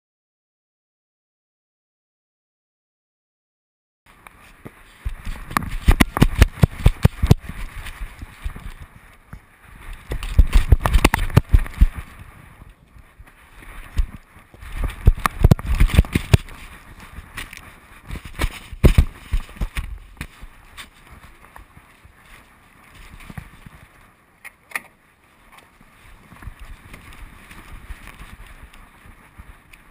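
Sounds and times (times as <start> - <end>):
camera knocking and rattling: 5.0 - 8.9, 10.0 - 12.1, 13.8 - 16.6, 17.4 - 20.4.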